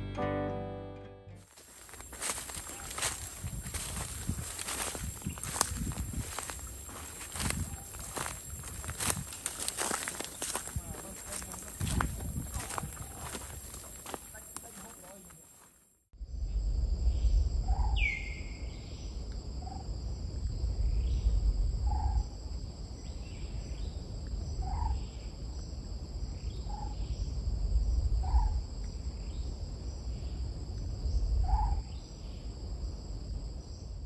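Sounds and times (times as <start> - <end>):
insects droning: 1.5 - 34.0
low rumble: 16.2 - 19.4.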